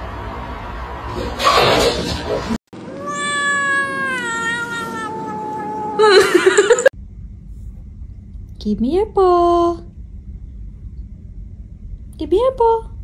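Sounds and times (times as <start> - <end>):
cat yowling: 2.8 - 6.7
cat meowing: 2.9 - 6.2.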